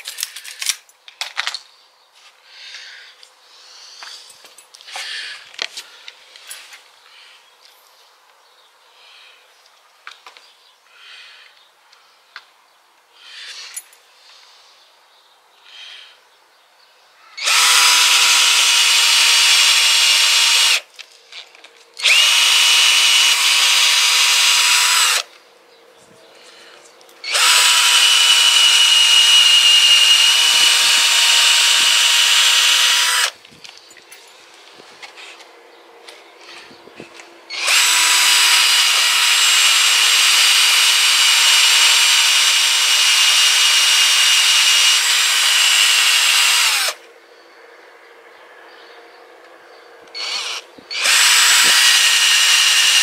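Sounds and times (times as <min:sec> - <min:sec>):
power tool motor running: 0:17.4 - 0:20.8, 0:22.0 - 0:25.3, 0:27.2 - 0:33.4, 0:37.5 - 0:47.0, 0:50.2 - 0:53.0.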